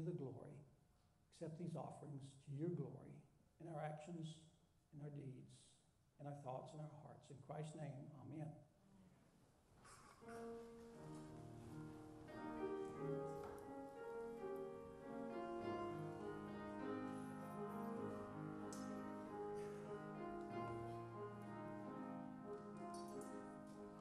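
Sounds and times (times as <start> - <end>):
slow keyboard music: 10.2 - 24.0.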